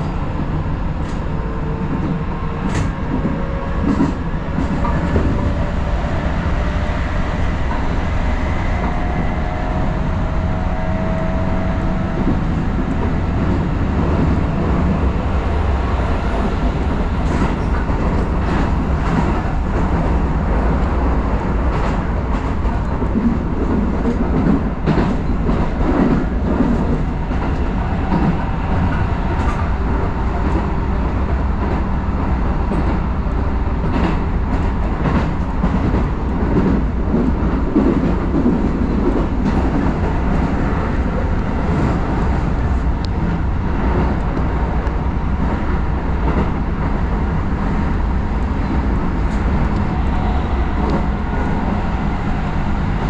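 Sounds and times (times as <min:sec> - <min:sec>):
electric train rumbling: 0:00.0 - 0:53.0.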